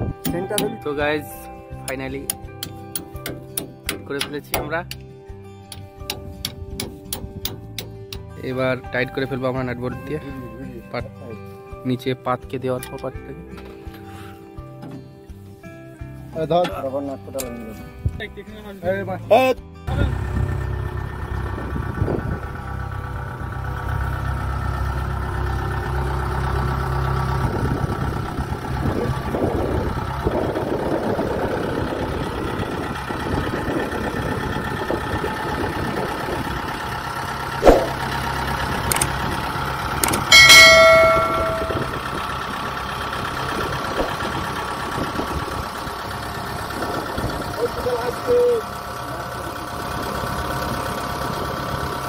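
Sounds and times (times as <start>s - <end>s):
diesel engine idling: 19.9s - 52.0s
sharp click: 38.9s - 39.2s
loud metallic clang: 40.3s - 42.0s.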